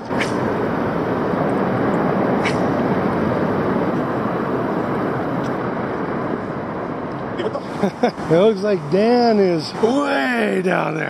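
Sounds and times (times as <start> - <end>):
river water running over rocks: 0.0 - 11.0.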